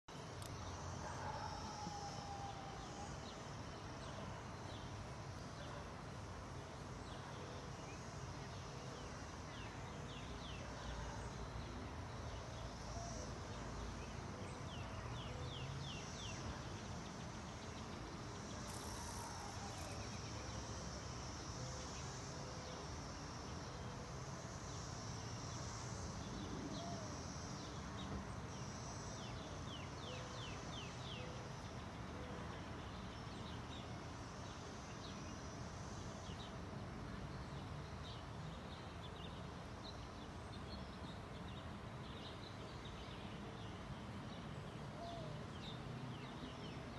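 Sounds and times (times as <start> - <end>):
insects buzzing: 0.1 - 32.2
quick insect chirps: 14.7 - 31.7.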